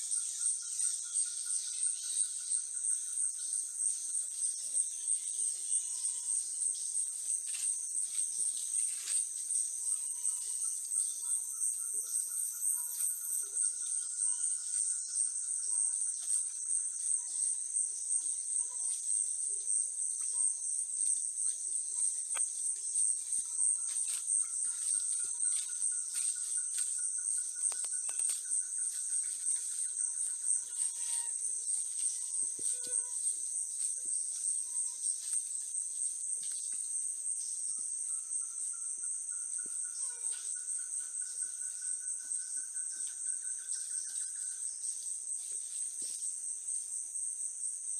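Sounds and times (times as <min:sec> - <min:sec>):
insects chorus pulsing: 0:21.0 - 0:46.3.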